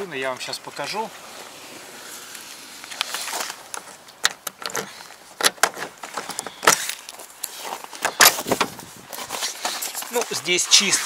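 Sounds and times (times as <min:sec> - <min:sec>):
clicks and knocks of handling: 0:03.0 - 0:10.3.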